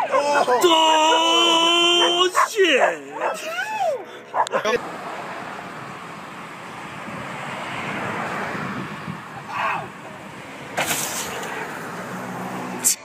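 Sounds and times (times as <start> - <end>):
person shouting: 0.0 - 4.1
wind noise on microphone: 7.9 - 9.5.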